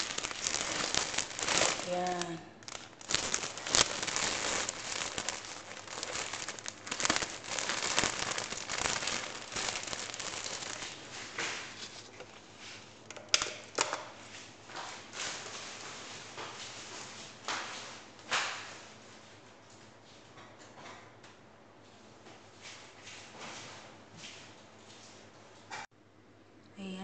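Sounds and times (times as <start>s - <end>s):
plastic bag crinkling: 0.0s - 12.5s.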